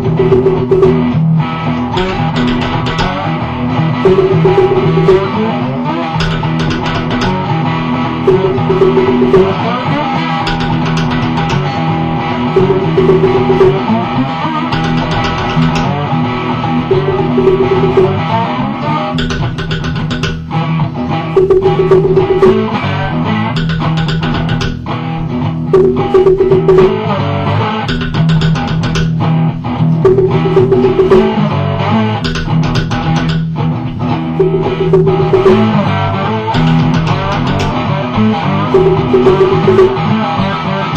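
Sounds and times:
log drum beating: 0.0s - 1.2s, 2.0s - 3.3s, 4.0s - 5.4s, 6.2s - 7.4s, 8.3s - 9.7s, 10.5s - 11.8s, 12.6s - 14.0s, 14.7s - 15.9s, 16.9s - 18.3s, 19.2s - 20.4s, 21.4s - 22.8s, 23.6s - 24.8s, 25.8s - 27.0s, 27.9s - 29.2s, 30.1s - 31.6s, 32.2s - 33.6s, 34.4s - 37.9s, 38.8s - 40.2s
guitar riff: 0.0s - 40.9s.

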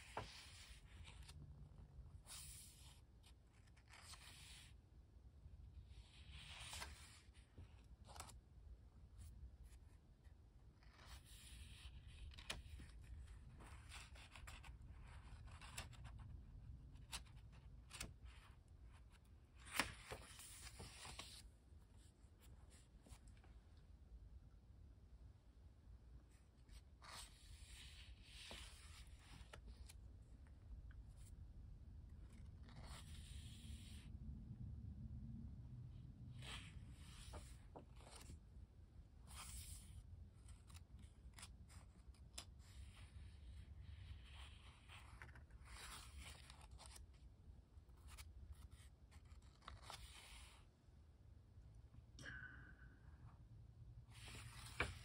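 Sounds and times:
paper pages rustling: 0.0s - 4.8s, 6.0s - 8.4s, 10.8s - 23.5s, 26.6s - 30.1s, 36.4s - 38.4s, 39.2s - 47.3s, 47.9s - 50.6s, 54.1s - 55.0s.

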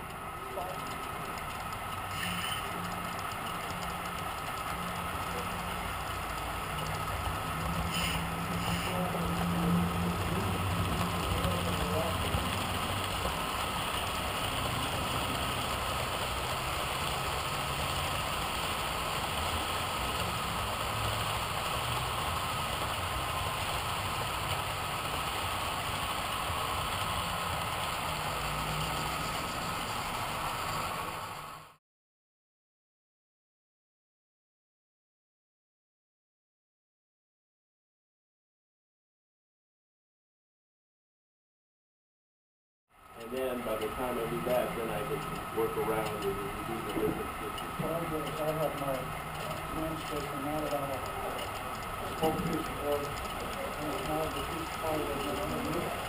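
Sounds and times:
model train humming: 0.0s - 31.8s, 43.0s - 56.0s.

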